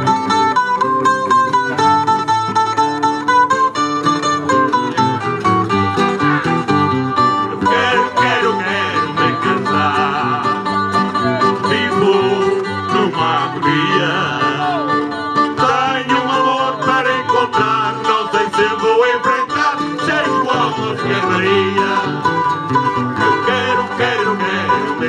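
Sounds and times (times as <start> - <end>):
plucked string accompaniment: 0.0 - 25.0
person singing: 7.5 - 25.0.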